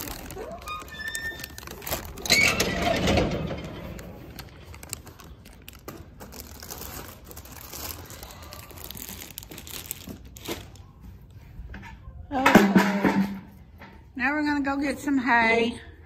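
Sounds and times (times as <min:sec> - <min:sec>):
rustling and crinkling: 0:00.0 - 0:12.2.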